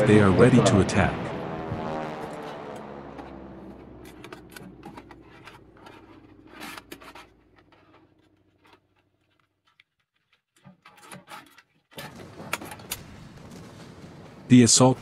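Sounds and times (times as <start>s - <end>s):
low rumble: 0.0s - 7.0s
faint scratching and rustling: 4.0s - 12.7s.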